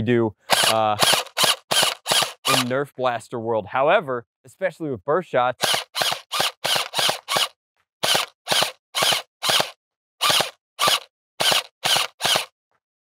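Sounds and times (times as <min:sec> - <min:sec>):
gel blaster pistol shots: 0:00.5 - 0:02.7.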